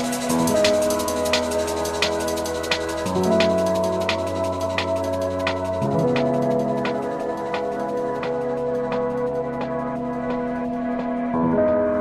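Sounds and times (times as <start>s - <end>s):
drum and bass music: 0.0s - 12.0s.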